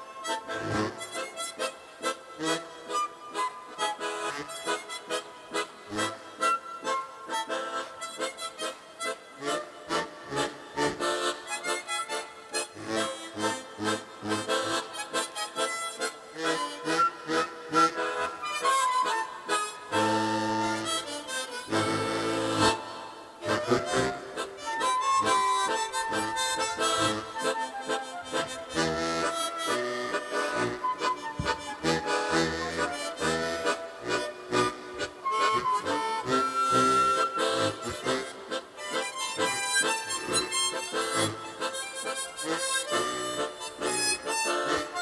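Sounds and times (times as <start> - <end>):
flute: 0.0 - 45.0
harmonica ensemble playing: 0.0 - 45.0.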